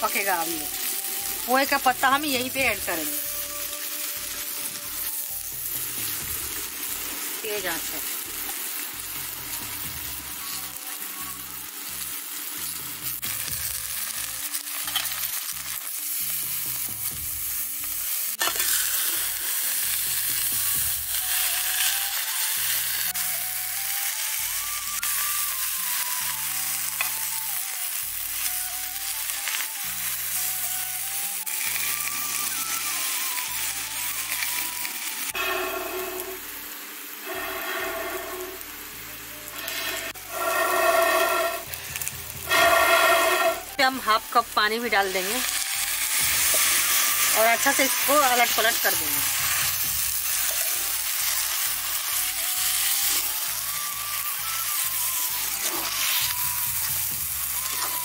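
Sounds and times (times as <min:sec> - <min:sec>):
leaves sizzling in a pan: 0:00.0 - 0:58.0
metal spatula stirring: 0:39.6 - 0:41.7, 0:42.4 - 0:43.7.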